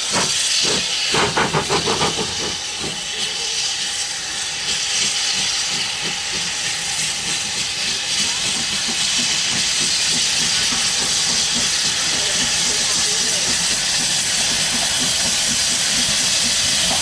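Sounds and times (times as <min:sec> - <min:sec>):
steam locomotive hissing: 0:00.0 - 0:17.0.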